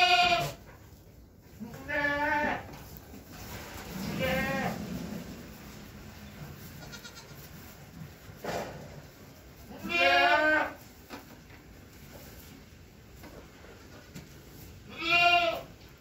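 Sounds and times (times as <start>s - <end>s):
goats bleating: 0.0s - 0.6s, 1.6s - 2.7s, 4.0s - 4.8s, 6.8s - 7.5s, 9.7s - 10.8s, 14.9s - 15.7s.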